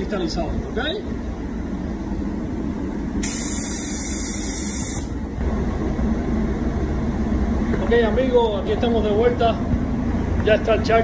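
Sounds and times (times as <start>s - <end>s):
steady low rumble: 0.0s - 11.0s
paint spray gun hissing: 3.2s - 5.2s.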